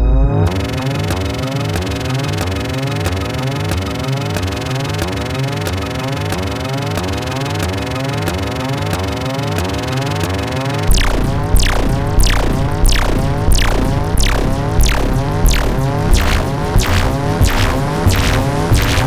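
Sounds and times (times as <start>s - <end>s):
synth pattern of rising glides: 10.6s - 19.0s
heavy low beat with zaps: 10.8s - 19.0s.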